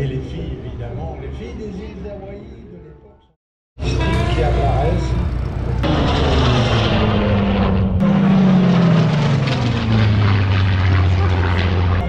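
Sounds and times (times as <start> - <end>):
propeller plane flying past: 4.2 - 12.0.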